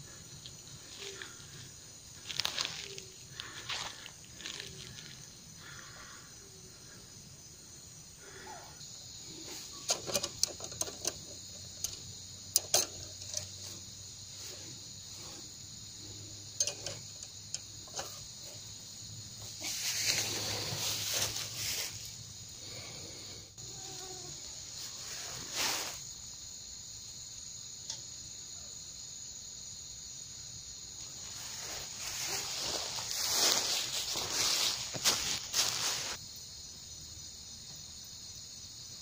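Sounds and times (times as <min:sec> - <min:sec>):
insects trilling: 0:00.0 - 0:39.0
sharp clicks and knocks: 0:09.8 - 0:13.8, 0:16.5 - 0:18.6
loud rustling: 0:19.4 - 0:22.1.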